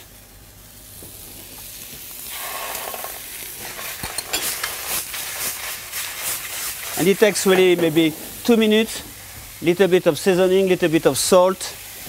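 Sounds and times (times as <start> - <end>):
frying sizzle: 0.0 - 12.0
pan clinking and scraping: 2.5 - 4.8.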